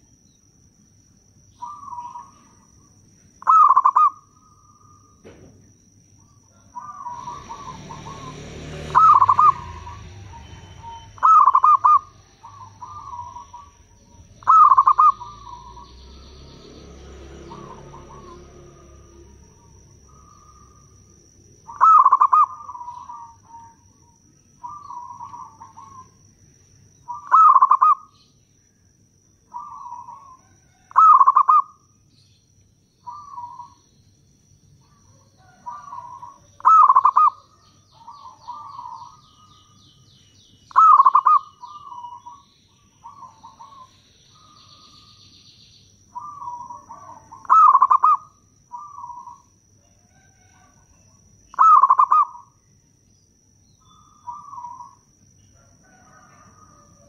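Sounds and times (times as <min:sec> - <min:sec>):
dove cooing: 0:01.6 - 0:05.4, 0:06.2 - 0:16.3, 0:17.4 - 0:26.2, 0:27.0 - 0:28.2, 0:29.5 - 0:31.8, 0:33.0 - 0:33.8, 0:34.8 - 0:39.8, 0:40.7 - 0:45.2, 0:46.2 - 0:50.9, 0:51.5 - 0:52.6, 0:53.9 - 0:55.0.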